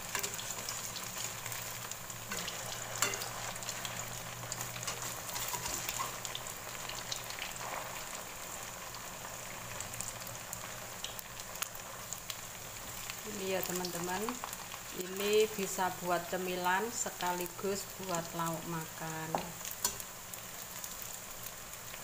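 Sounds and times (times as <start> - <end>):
spatula stirring in oil: 0.0 - 9.5, 19.3 - 21.1
food deep-frying in oil: 0.0 - 22.0.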